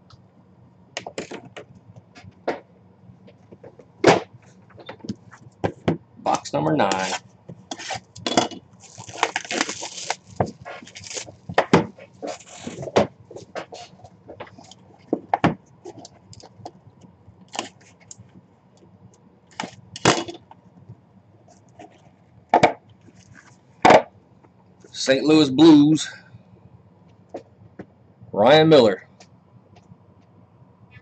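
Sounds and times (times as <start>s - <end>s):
cardboard rasp: 7.0s - 8.0s, 9.0s - 14.0s.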